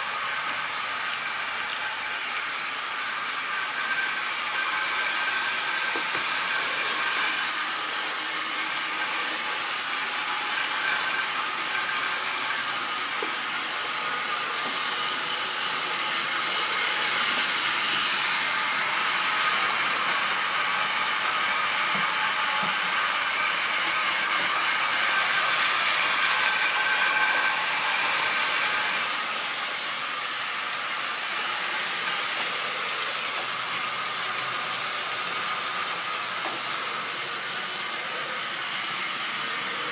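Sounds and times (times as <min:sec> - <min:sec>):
model train motor whining: 0:00.0 - 0:39.9.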